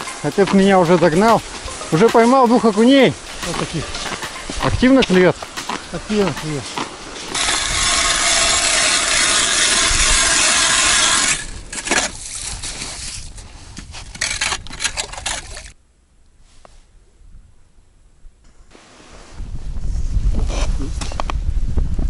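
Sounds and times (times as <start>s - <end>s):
scraping and knocks: 0.0s - 13.2s
ice auger grinding: 7.3s - 12.8s.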